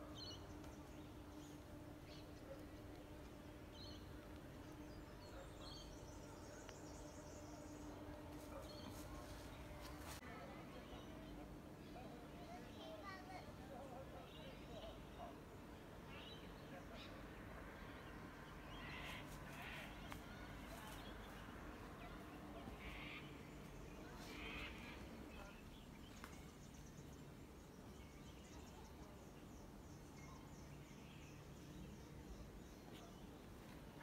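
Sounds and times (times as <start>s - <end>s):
faint low hum: 0.0s - 34.0s
short bird calls: 22.7s - 23.4s.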